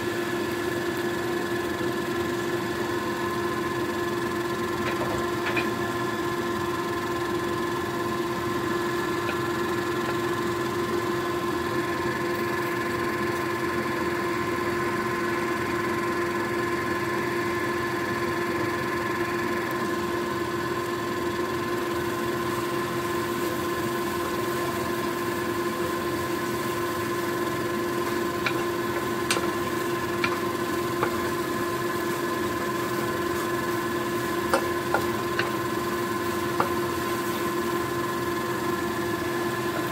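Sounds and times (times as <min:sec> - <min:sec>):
steady machine hum: 0:00.0 - 0:39.9
spatula tapping and scraping a pan: 0:04.8 - 0:05.8, 0:28.0 - 0:31.4, 0:34.5 - 0:35.6.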